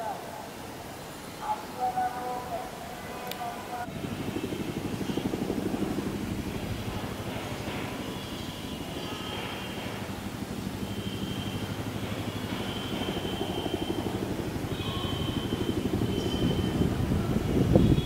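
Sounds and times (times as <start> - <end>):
turbine engine noise: 0.0 - 18.0
helicopter rotor beating: 3.6 - 18.0.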